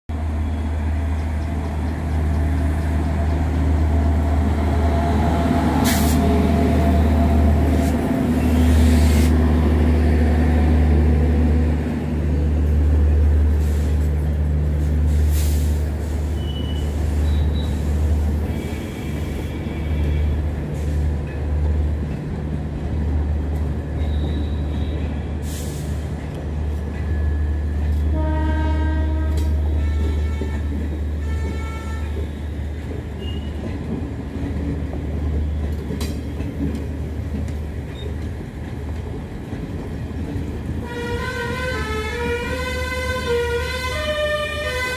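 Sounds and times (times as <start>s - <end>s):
train passing with low rumble: 0.1s - 44.9s
train horn: 28.1s - 32.4s, 40.8s - 44.9s.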